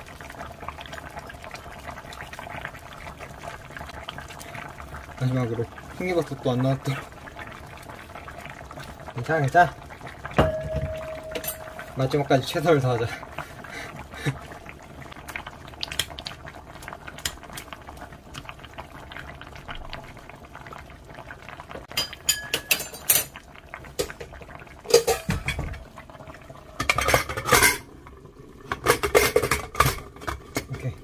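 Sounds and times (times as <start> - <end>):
stew simmering: 0.0 - 31.0
utensil clinking against a pot: 10.4 - 12.3, 21.9 - 23.4, 24.0 - 25.8.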